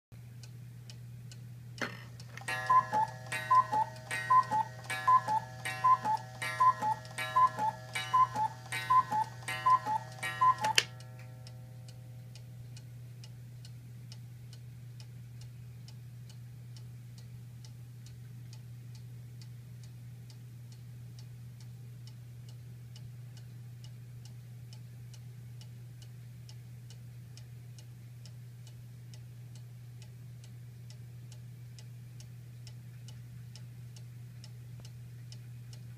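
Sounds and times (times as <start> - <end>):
clock pendulum ticking: 0.4 - 11.6
cuckoo clock calls: 1.8 - 11.1.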